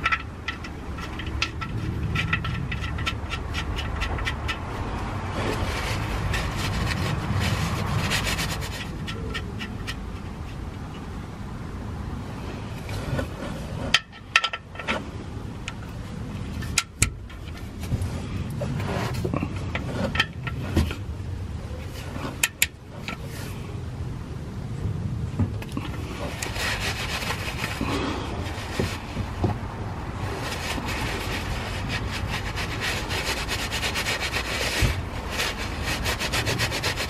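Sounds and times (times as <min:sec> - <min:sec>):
ratchet metal clicks: 0:00.0 - 0:04.7, 0:13.9 - 0:15.0
rubbing and handling noise: 0:00.0 - 0:23.9, 0:25.3 - 0:37.0.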